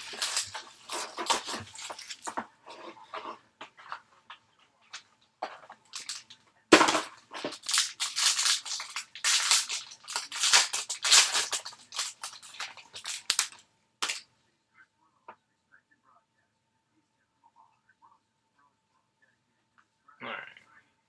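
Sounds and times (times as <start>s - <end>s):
foil wrapper tearing and crinkling: 0.0s - 2.4s, 5.9s - 14.2s.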